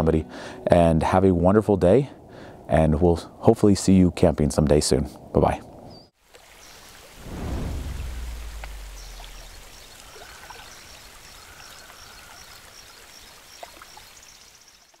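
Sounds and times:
rushing stream water: 0:06.2 - 0:15.0
deep boom: 0:07.2 - 0:10.3.

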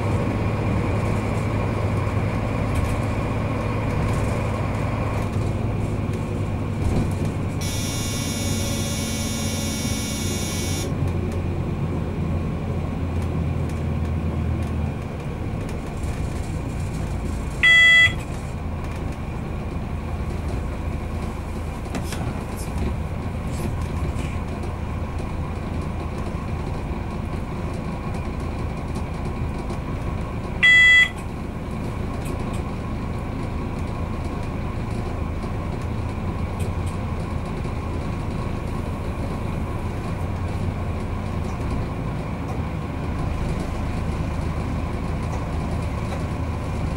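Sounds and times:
train running rumble: 0:00.0 - 0:46.9
short electronic beep: 0:07.6 - 0:10.9, 0:17.6 - 0:18.2, 0:30.6 - 0:31.2.

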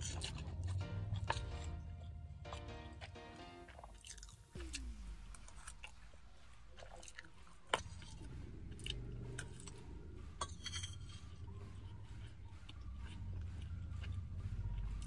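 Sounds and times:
sharp crunch of cashew: 0:00.0 - 0:01.9, 0:02.5 - 0:11.0
chewing with small crunches: 0:00.0 - 0:15.0.

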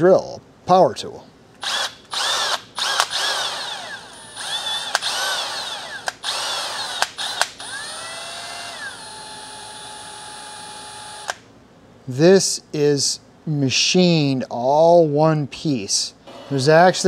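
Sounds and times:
cordless drill motor whine: 0:01.6 - 0:11.4.

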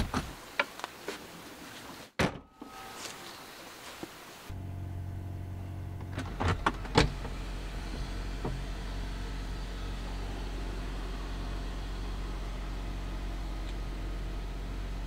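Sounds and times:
car engine idling: 0:04.5 - 0:15.0.

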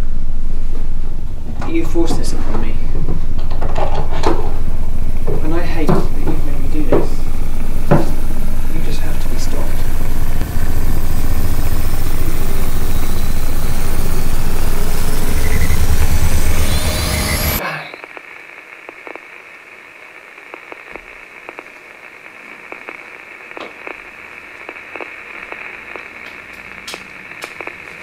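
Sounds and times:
electronic drone: 0:00.0 - 0:18.2
crackling static: 0:00.0 - 0:28.0
high ringing tone: 0:04.5 - 0:18.2
high whistling tones sweeping upward: 0:10.6 - 0:17.6.

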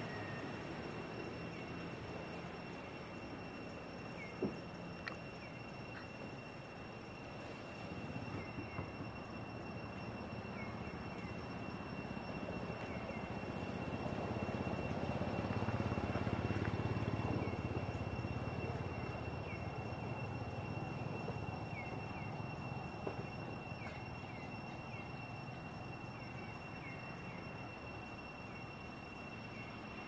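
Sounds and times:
low engine drone: 0:00.0 - 0:30.0
steady high-pitched tone: 0:00.0 - 0:30.0.

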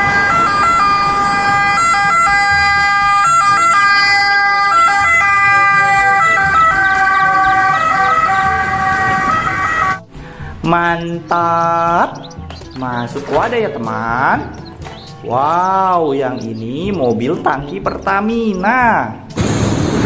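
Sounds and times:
ambulance siren wailing: 0:00.0 - 0:10.1.

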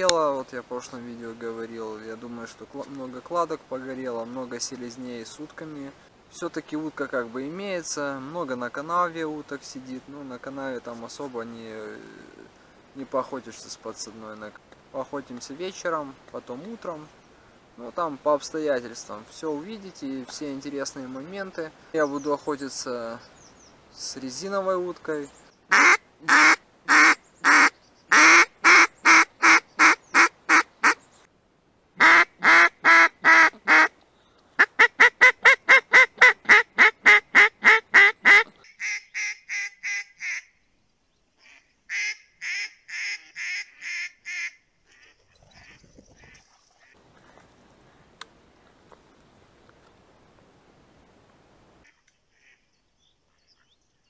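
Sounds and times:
duck call quacking: 0:25.7 - 0:31.0, 0:32.0 - 0:33.9, 0:34.6 - 0:40.5, 0:41.4 - 0:45.8.

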